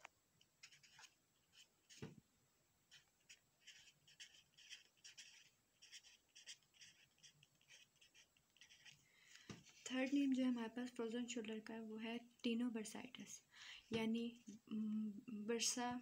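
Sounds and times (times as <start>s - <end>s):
pencil scratching on paper: 0.6s - 2.1s, 2.9s - 9.0s, 9.6s - 10.4s.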